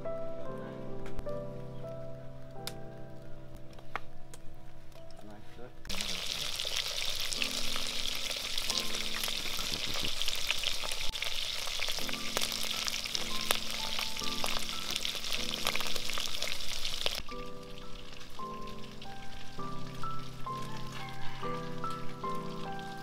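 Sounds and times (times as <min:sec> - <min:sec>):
soft background music: 0:00.0 - 0:05.9, 0:06.8 - 0:23.0
fish sizzling and crackling: 0:05.9 - 0:23.0.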